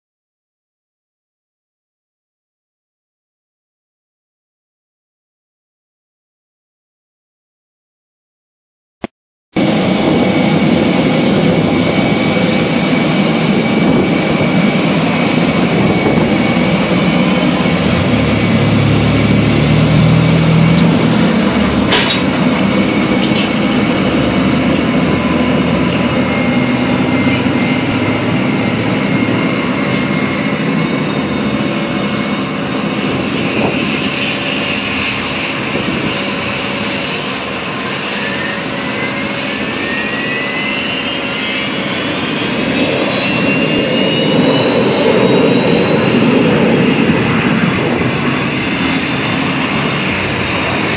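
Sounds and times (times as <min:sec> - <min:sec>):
low rumble: 0:09.6 - 0:31.6
jet engine whine: 0:09.6 - 0:50.9.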